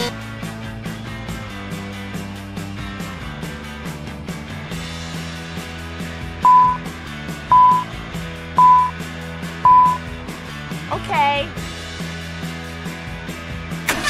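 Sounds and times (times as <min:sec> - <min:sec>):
background music with steady beat: 0:00.0 - 0:13.9
electronic beeps: 0:06.5 - 0:06.8, 0:07.5 - 0:07.9, 0:08.6 - 0:09.0, 0:09.7 - 0:10.0.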